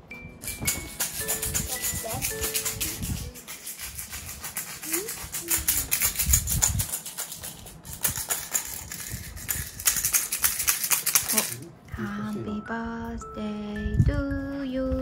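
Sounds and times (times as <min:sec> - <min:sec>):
rapid rattling: 0:00.4 - 0:11.7.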